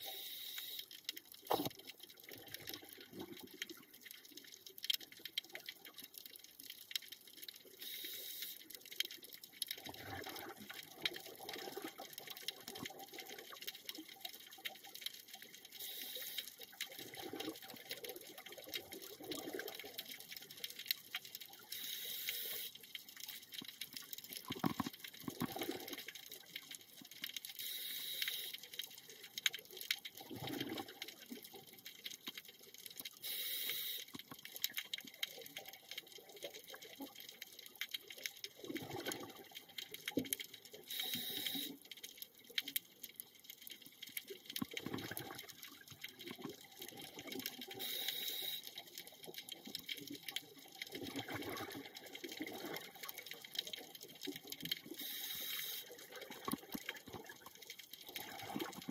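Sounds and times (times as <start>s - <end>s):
regulator breathing hiss: 0.0s - 0.9s, 7.8s - 8.6s, 15.8s - 16.5s, 21.8s - 22.7s, 27.6s - 28.5s, 33.2s - 34.1s, 40.9s - 41.7s, 47.8s - 48.6s, 55.0s - 55.9s
fine underwater crackle: 0.0s - 58.9s
bubbles gurgling: 2.2s - 3.8s, 9.8s - 13.4s, 17.0s - 20.1s, 24.4s - 26.1s, 30.2s - 31.7s, 38.6s - 39.8s, 44.6s - 47.8s, 50.4s - 55.2s, 55.9s - 58.9s.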